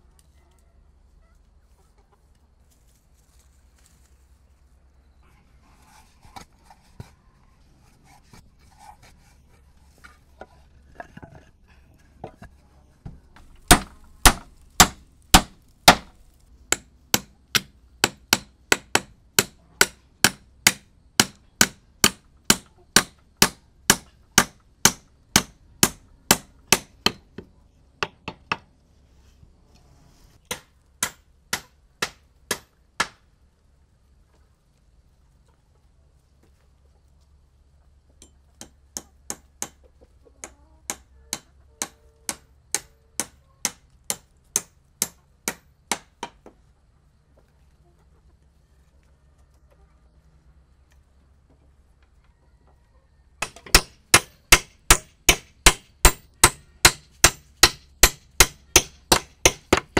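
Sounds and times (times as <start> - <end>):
hand tool striking wood: 13.4 - 28.7, 30.5 - 33.2, 38.2 - 39.8, 40.9 - 46.5, 53.4 - 59.9.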